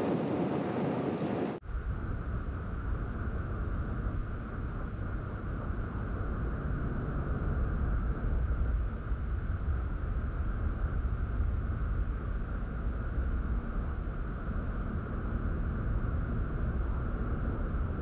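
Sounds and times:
boat engine rumble: 0.0 - 1.6
wind buffeting microphone: 0.0 - 1.6.

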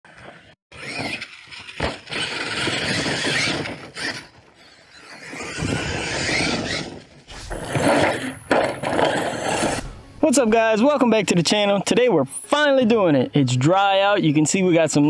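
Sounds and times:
rc truck motor whine: 0.1 - 10.2.

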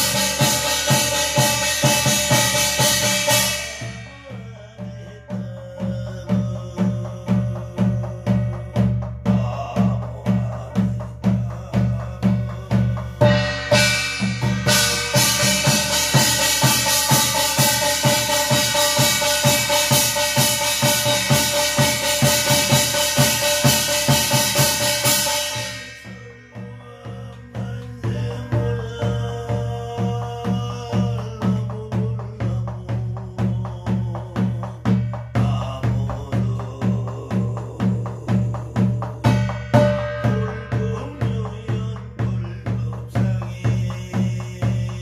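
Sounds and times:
ringing brass percussion: 0.0 - 4.6, 13.2 - 29.7, 39.2 - 42.0
barrel drum beating: 0.0 - 45.0.

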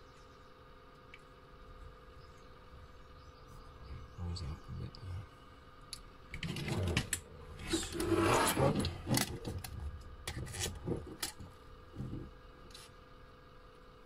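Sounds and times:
toy car chassis scraping: 6.4 - 11.4.

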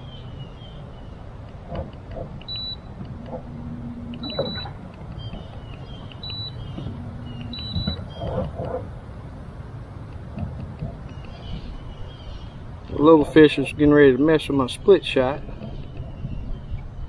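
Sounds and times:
wind rumble on microphone: 0.0 - 17.0
short high electronic beeps: 4.2 - 4.7, 6.2 - 6.6, 7.4 - 8.3.

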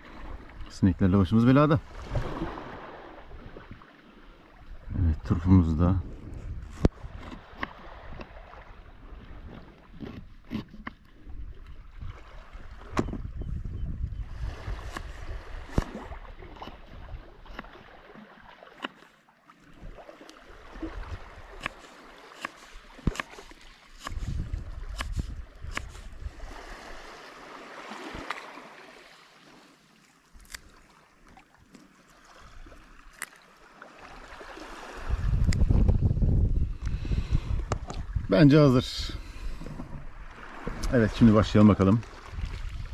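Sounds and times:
wind rumble on microphone: 4.6 - 17.6, 20.6 - 21.7, 24.0 - 27.1, 34.7 - 42.9.

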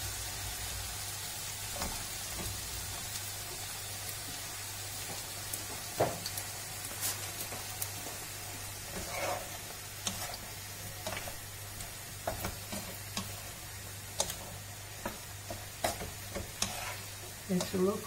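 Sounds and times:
vegetables sizzling in a frying pan: 0.0 - 18.0
wooden spoon scraping a pan: 8.8 - 18.0.

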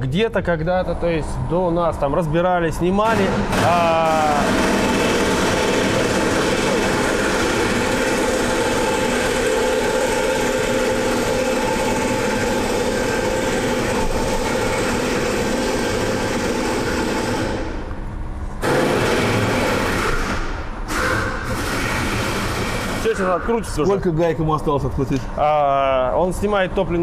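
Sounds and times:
diesel engine idling: 0.6 - 17.8.

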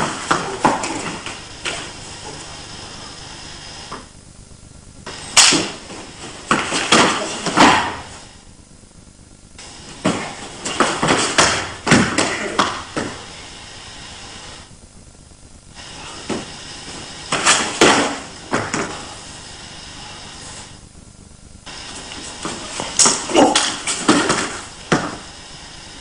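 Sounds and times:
bodies thudding and scuffing on floor: 5.1 - 8.3, 9.8 - 13.3, 16.0 - 19.2, 21.8 - 25.3.

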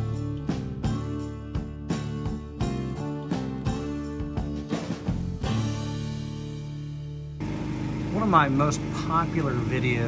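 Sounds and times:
background music with steady beat: 0.0 - 7.4.

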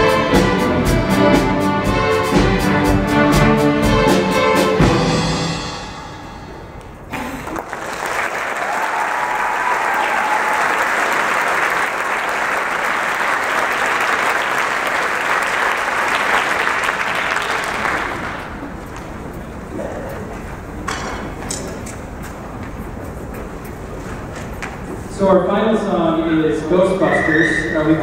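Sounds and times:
audience applause: 7.1 - 19.7.

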